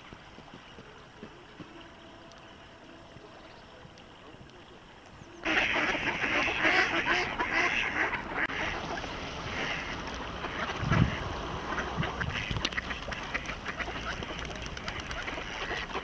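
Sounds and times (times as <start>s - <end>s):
ducks quacking: 5.3s - 16.0s.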